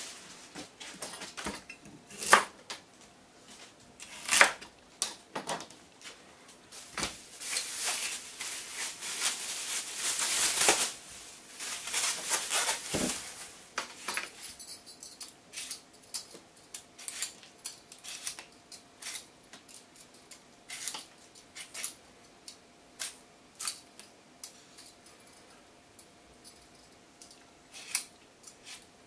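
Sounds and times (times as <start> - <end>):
handling of radish: 6.7 - 13.8
peeler scraping radish skin: 18.0 - 19.3, 20.7 - 22.0, 27.7 - 28.9.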